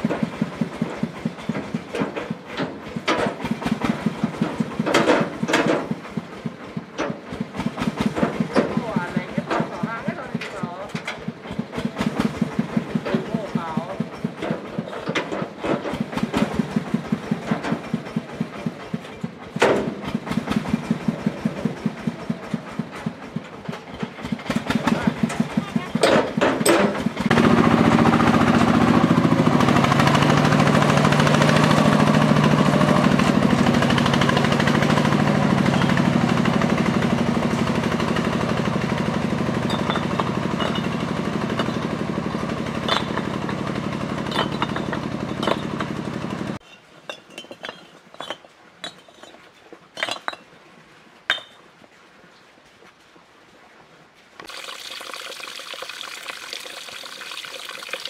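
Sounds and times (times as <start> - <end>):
vehicle engine running: 0.0 - 46.6
bricks clinking: 39.6 - 42.0, 42.8 - 46.0, 46.6 - 50.5, 51.3 - 51.6
water trickling: 54.4 - 58.0.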